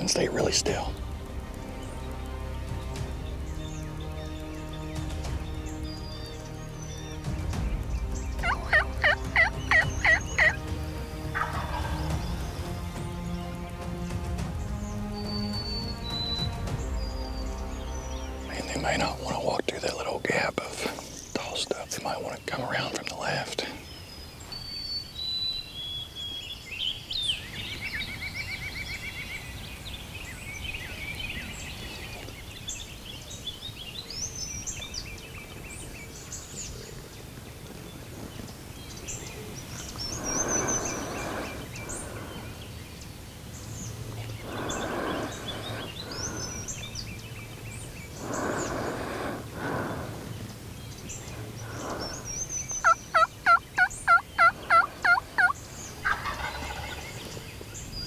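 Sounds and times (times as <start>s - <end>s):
songbirds singing: 0.0s - 58.0s
loud turkey yelps: 8.4s - 10.6s, 11.4s - 11.9s, 52.8s - 57.0s
turkey gobbling: 8.4s - 10.6s, 11.3s - 12.1s, 52.8s - 57.4s.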